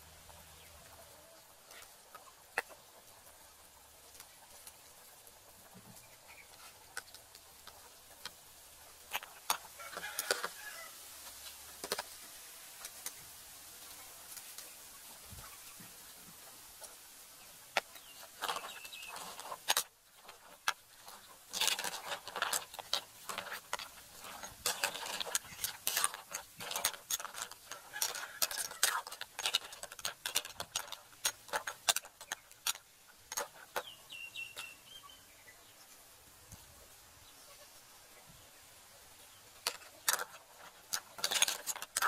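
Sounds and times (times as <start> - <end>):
sharp clicks and light knocks: 17.7 - 33.9.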